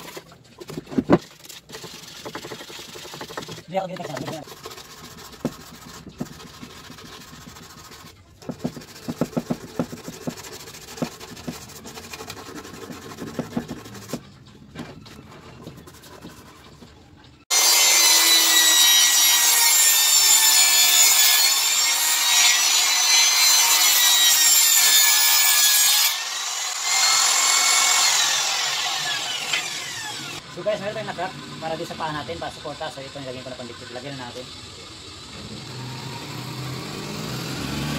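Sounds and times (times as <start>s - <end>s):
sandpaper rubbing on wood: 1.4s - 14.2s, 15.6s - 16.7s
table saw cutting board: 17.5s - 32.4s, 35.0s - 37.9s.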